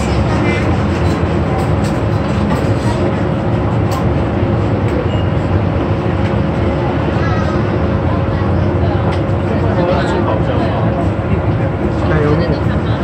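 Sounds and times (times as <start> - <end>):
gas stove burners roaring: 0.0 - 13.0.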